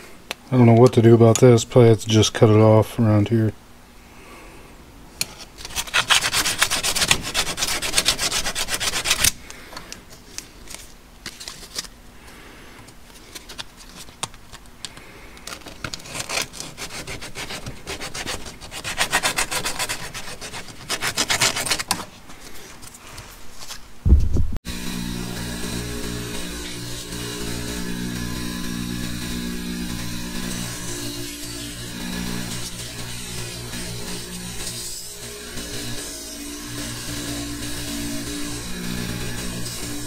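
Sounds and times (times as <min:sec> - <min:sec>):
sandpaper scratching on plastic: 0:05.6 - 0:09.4, 0:15.5 - 0:22.6.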